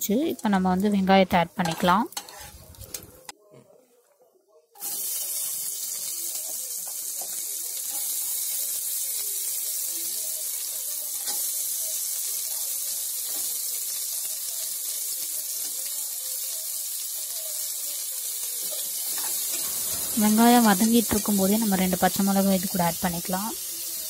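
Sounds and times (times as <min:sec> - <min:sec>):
onions sizzling in oil: 0:00.0 - 0:03.3, 0:04.8 - 0:24.0
ladle scraping pot: 0:01.7 - 0:03.0.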